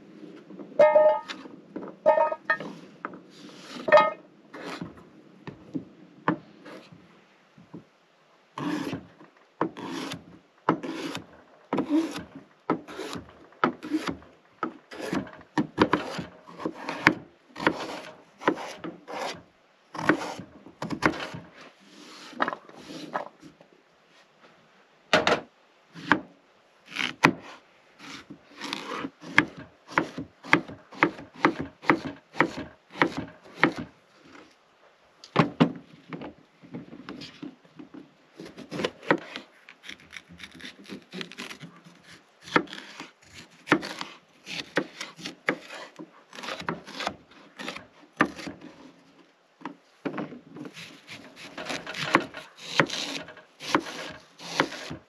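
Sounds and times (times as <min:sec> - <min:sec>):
knife cutting on wooden board: 0:15.8 - 0:19.4, 0:20.0 - 0:23.3, 0:38.4 - 0:48.5, 0:50.7 - 0:55.0.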